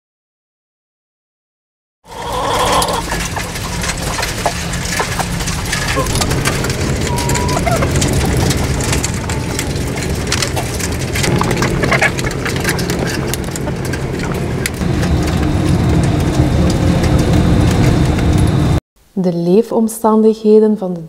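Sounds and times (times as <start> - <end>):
clicks and rattles on wire mesh: 2.4 - 14.8
low machine hum: 2.4 - 18.8.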